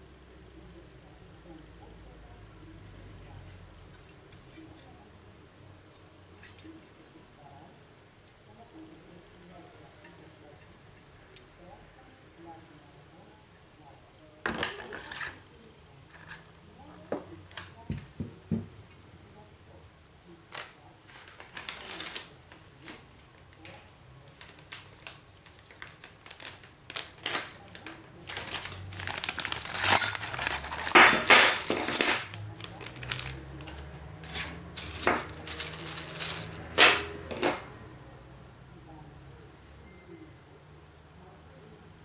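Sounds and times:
plastic bag rustling: 21.1s - 37.6s
small metal parts clinking: 26.4s - 33.7s, 34.3s - 37.7s.

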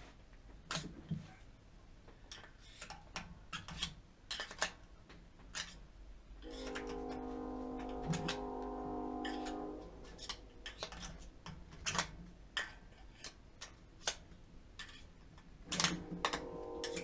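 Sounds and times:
hand tools clicking and tapping: 9.2s - 17.0s.

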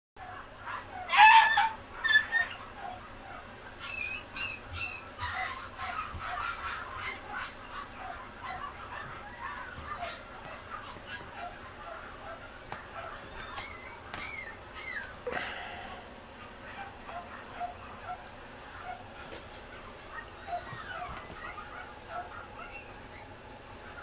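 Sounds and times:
puppy yelping and whimpering: 0.2s - 15.2s, 16.4s - 18.2s, 20.1s - 23.3s.

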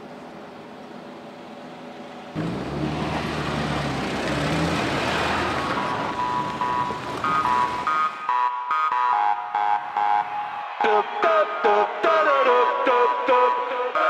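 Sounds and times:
car driving past: 2.3s - 8.0s
high electronic melody: 5.8s - 14.0s.

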